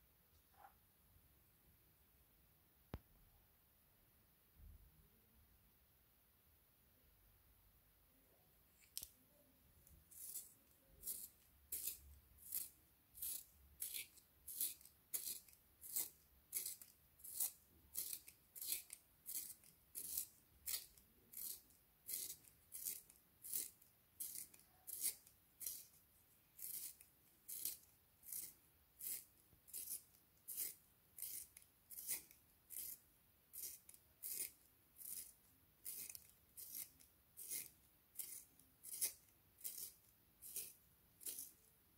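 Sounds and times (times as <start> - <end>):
pencil sharpener scraping: 10.1 - 26.0, 26.6 - 41.7.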